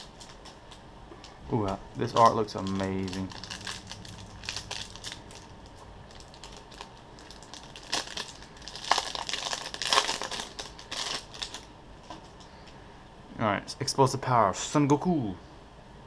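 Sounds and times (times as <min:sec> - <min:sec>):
plastic wrapper crinkling: 0:00.0 - 0:12.5.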